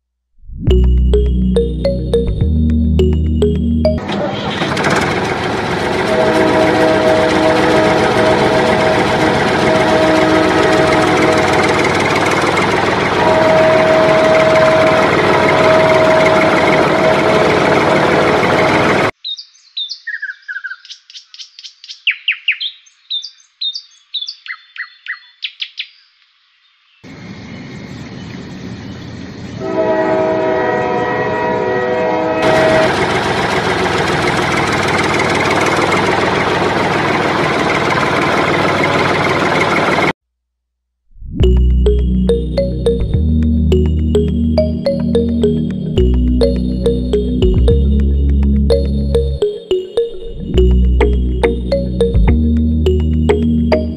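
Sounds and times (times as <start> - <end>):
held horn-like tone: 5.8 - 19.1, 29.6 - 33.3.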